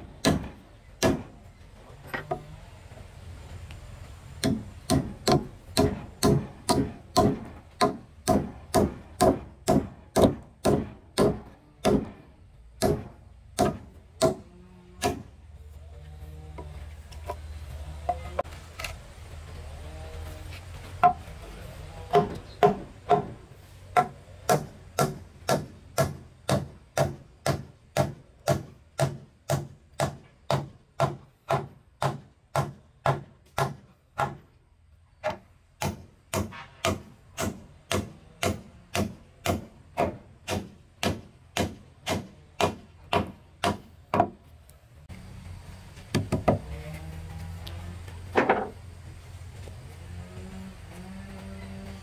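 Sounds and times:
tool striking wood: 0.2 - 1.4, 4.4 - 12.2, 12.8 - 15.3, 22.1 - 23.4, 24.0 - 34.4, 35.2 - 44.4, 46.1 - 46.7.

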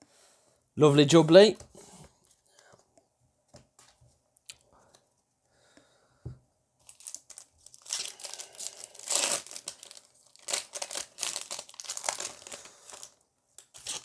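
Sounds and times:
foil pack crinkling: 6.8 - 14.0.

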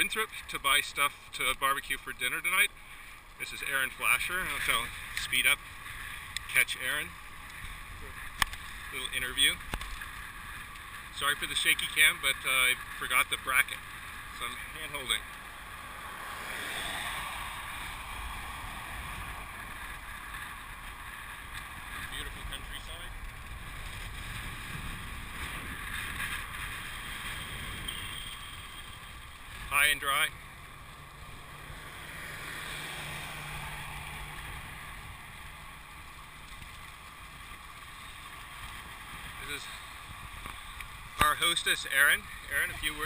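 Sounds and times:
wind rushing over microphone: 15.7 - 35.5
wind on microphone: 21.8 - 29.7.

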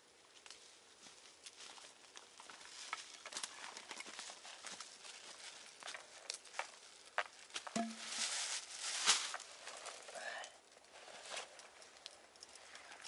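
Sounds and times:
footsteps on forest litter: 1.0 - 9.9
plastic bag crinkling: 1.5 - 10.2.

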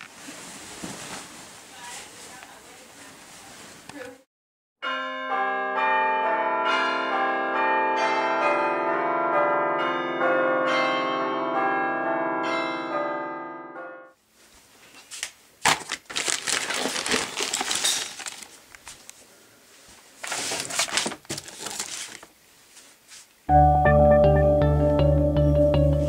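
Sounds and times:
crackling handling noise: 14.6 - 19.2, 19.8 - 22.9
music of held notes: 23.5 - 26.0.

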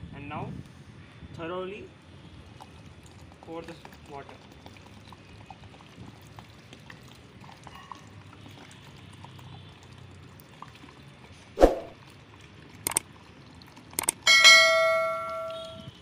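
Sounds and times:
water trickling onto soil: 2.0 - 14.3
swoosh sound effect: 11.6 - 12.0
quick clicks: 12.8 - 13.0, 14.0 - 14.2.

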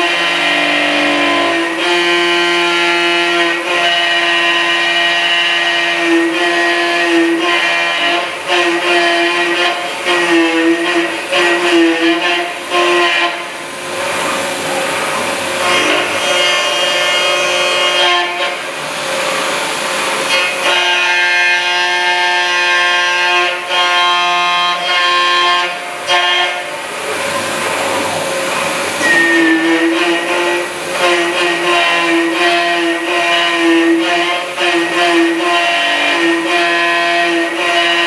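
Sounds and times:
milling machine cutting metal: 0.0 - 38.0.

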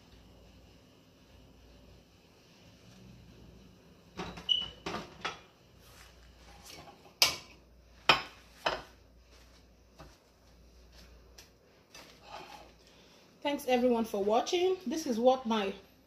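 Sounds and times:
utensils clattering on stove grates: 6.4 - 7.5, 11.9 - 12.8.

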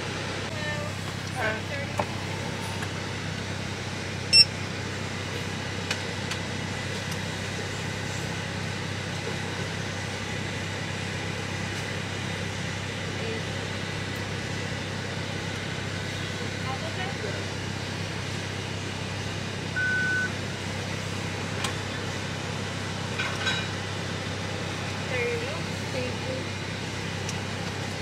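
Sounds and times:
car running from inside cabin: 0.0 - 10.1
short high beep: 4.3 - 4.5, 19.8 - 20.3.

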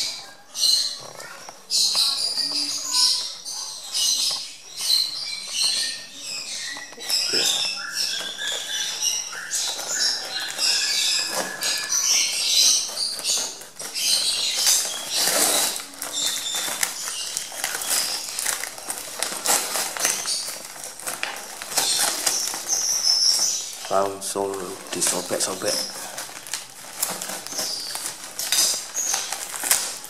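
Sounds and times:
birds chirping: 0.0 - 30.0
cardboard and tape tearing: 3.9 - 30.0.

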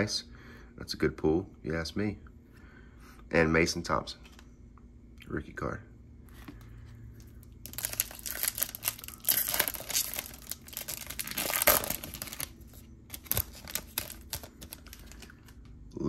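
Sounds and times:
wrapper tearing and crinkling: 7.4 - 15.6.

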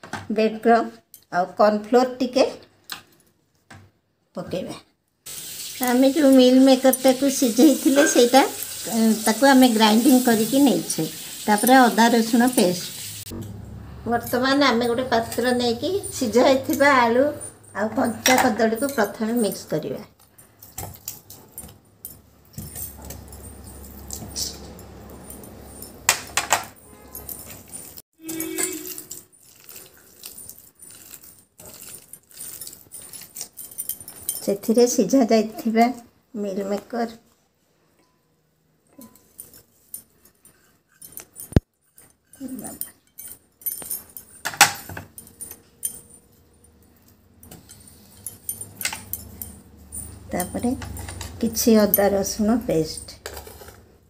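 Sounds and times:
clinks against metal bowl: 6.9 - 8.4, 14.2 - 19.8
metallic clinks against bowl: 14.2 - 34.7, 38.9 - 53.3
hand mixing food in bowl: 27.3 - 35.8.

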